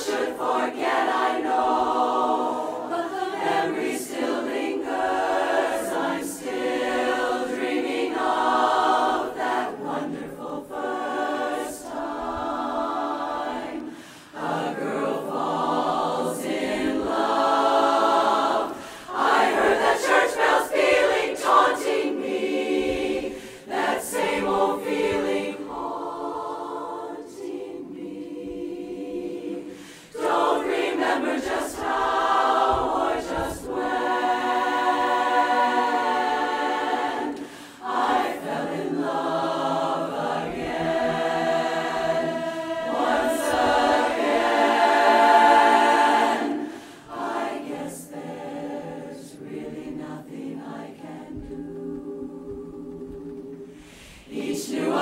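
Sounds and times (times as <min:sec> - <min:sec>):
women's a cappella chorus singing: 0:00.0 - 0:55.0
singers breathing: 0:13.8 - 0:14.4, 0:18.7 - 0:19.2, 0:23.3 - 0:23.8, 0:29.7 - 0:30.2, 0:37.3 - 0:37.9, 0:42.3 - 0:42.8, 0:46.6 - 0:47.1, 0:53.6 - 0:54.4.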